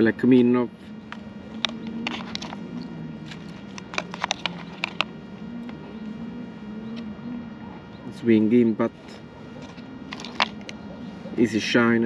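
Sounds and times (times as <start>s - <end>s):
low steady hum: 0.0s - 12.0s
plastic lures clicking: 3.3s - 5.8s.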